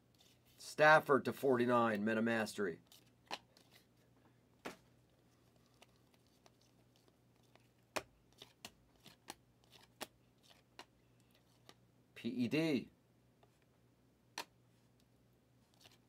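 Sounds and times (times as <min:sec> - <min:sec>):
trading cards clicking and snapping: 0:05.8 - 0:10.9.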